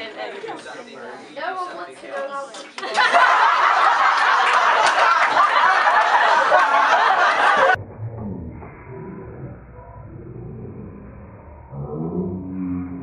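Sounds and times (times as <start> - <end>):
crowd laughing loudly: 2.8 - 7.8
muffled low rumble: 7.8 - 13.0.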